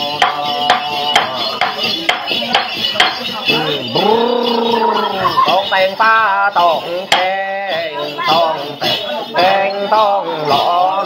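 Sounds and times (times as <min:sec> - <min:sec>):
ritual chanting: 0:00.0 - 0:11.0.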